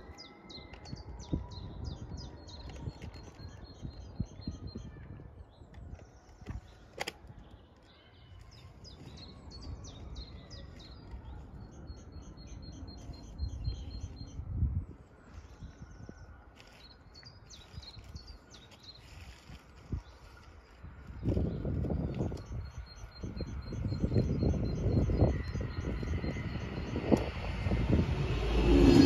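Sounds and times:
songbirds chirping and singing: 0:00.0 - 0:29.0
low rumble: 0:23.2 - 0:29.0.

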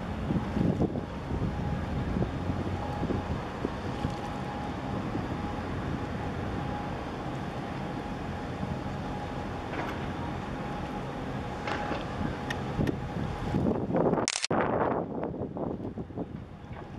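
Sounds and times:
wind on microphone: 0:00.0 - 0:06.2, 0:11.8 - 0:16.9
ship engine rumble: 0:00.0 - 0:14.2, 0:14.8 - 0:16.9.

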